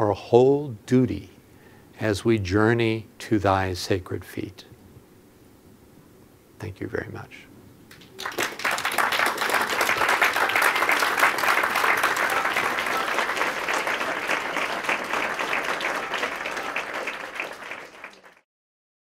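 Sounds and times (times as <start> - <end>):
audience applauding: 7.9 - 18.4.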